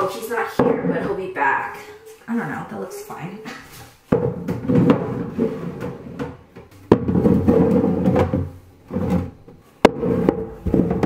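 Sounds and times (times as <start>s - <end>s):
plastic bin scraping on shelf: 4.1s - 11.0s.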